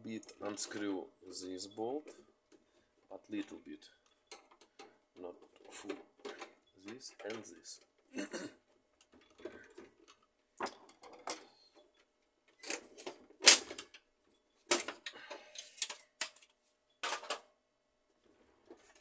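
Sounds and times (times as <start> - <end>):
plastic panels snapping and clattering: 9.0 - 11.5, 12.5 - 14.0, 14.7 - 17.5.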